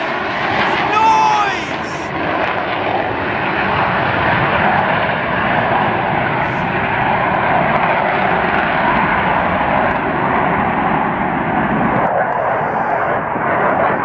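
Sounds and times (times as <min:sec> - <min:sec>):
jet engine roar: 0:00.0 - 0:14.0.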